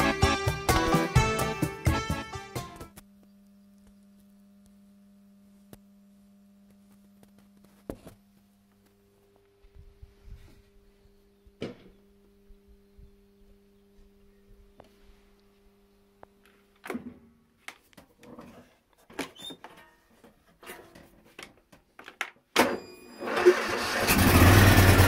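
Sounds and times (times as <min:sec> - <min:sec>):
faint low hum: 0:02.9 - 0:18.8.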